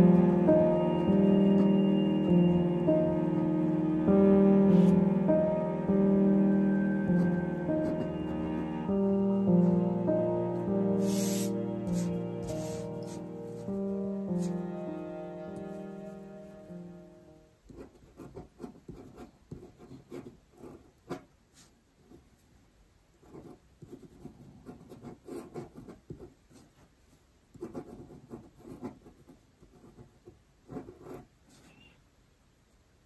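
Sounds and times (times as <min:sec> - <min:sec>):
pen scratching on paper: 0:07.1 - 0:08.2, 0:11.0 - 0:13.8, 0:17.7 - 0:22.2, 0:23.2 - 0:26.9, 0:27.5 - 0:31.8.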